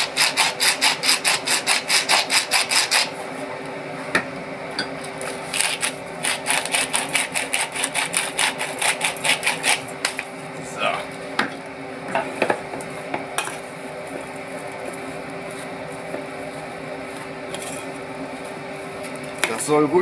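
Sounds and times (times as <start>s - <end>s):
pepper mill grinding: 5.3s - 10.2s.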